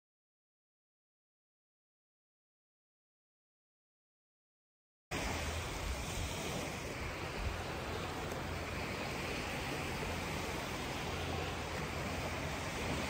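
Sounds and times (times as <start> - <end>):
small surf washing on beach: 5.1 - 13.0
wind blowing across microphone: 5.1 - 13.0.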